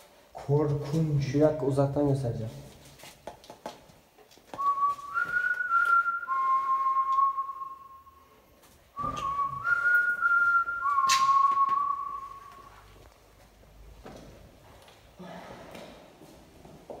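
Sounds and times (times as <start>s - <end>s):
high whistling tones: 4.6s - 13.0s.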